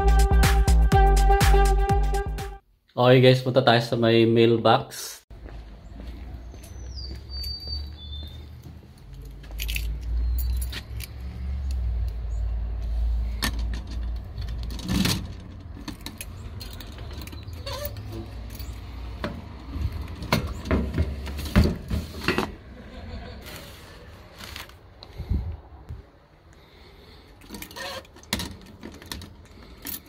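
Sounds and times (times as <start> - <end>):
keys jangling: 9.0 - 11.8, 15.4 - 19.0, 27.4 - 30.0.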